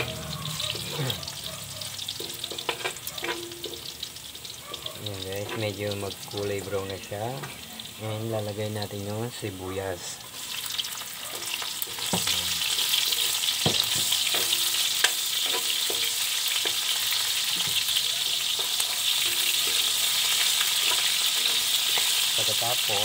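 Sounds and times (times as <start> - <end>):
metal spatula scraping a pan: 0.0 - 6.7, 10.4 - 23.0
onion frying in hot oil: 0.0 - 23.0.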